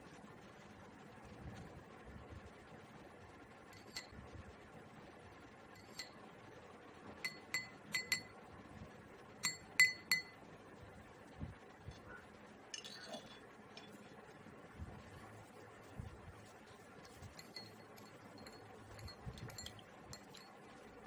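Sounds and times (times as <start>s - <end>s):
spoon clinking against glass: 3.8s - 4.2s, 5.8s - 6.2s, 7.2s - 8.4s, 9.4s - 10.4s, 17.0s - 20.6s.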